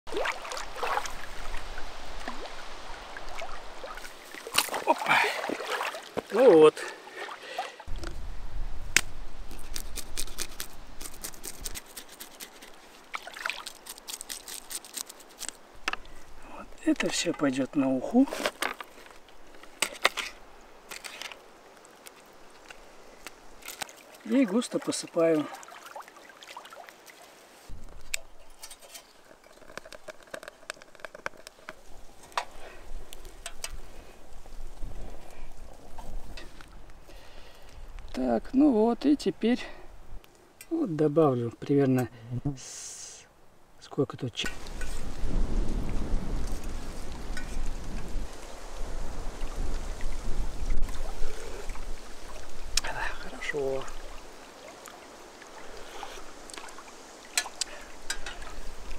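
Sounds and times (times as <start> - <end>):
sticks crackling and clicking: 8.9 - 16.1, 18.4 - 24.2, 27.9 - 32.5, 57.3 - 58.6
fish scales being scraped: 9.5 - 12.8, 13.6 - 15.6
fire burning in metal stove: 28.7 - 31.9.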